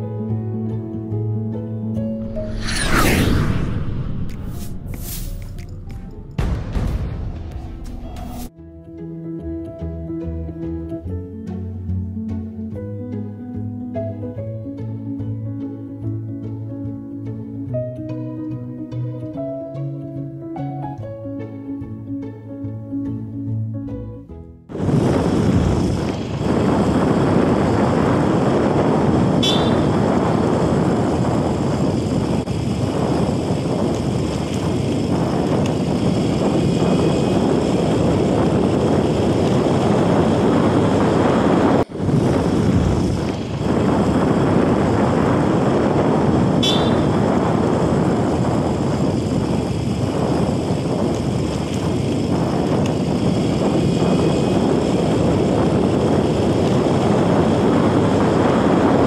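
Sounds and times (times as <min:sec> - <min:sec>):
wind noise: 0:02.1 - 0:08.5, 0:24.7 - 0:59.0.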